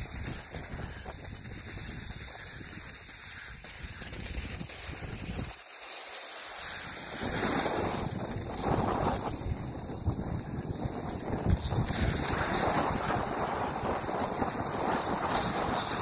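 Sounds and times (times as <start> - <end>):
wind gusting over microphone: 7.0 - 16.0.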